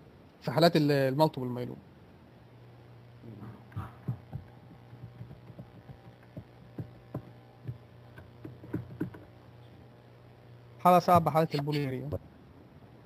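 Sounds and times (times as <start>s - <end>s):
low electrical hum: 0.0s - 13.0s
soft taps and thumps: 3.7s - 9.3s.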